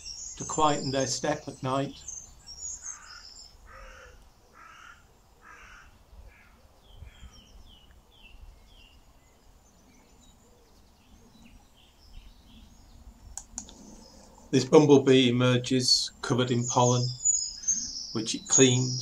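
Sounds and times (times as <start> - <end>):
small bird chirping: 0.0 - 4.9, 6.1 - 14.6, 16.5 - 19.0
crow cawing: 2.8 - 7.3.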